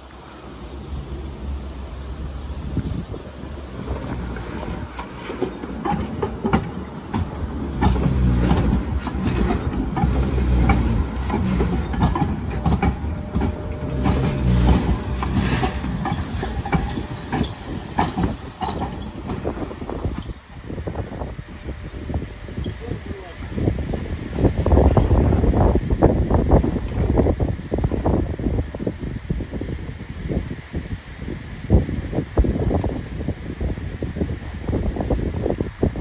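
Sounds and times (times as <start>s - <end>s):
tram rumble: 0.0s - 36.0s
wheels clacking over rail gaps: 3.3s - 23.7s.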